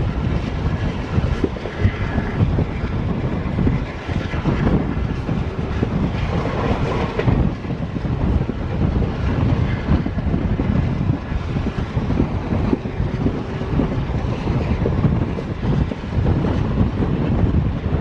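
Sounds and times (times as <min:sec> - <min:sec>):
train coach rumbling: 0:00.0 - 0:18.0
wind buffeting microphone: 0:00.0 - 0:18.0.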